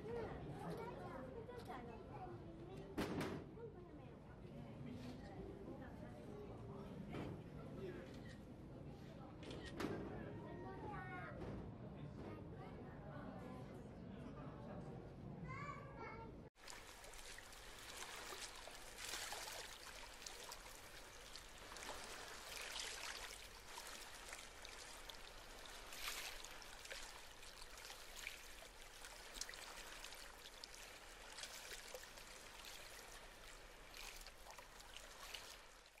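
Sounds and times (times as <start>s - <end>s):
water running and trickling: 16.6s - 36.0s
water splashing: 16.6s - 36.0s.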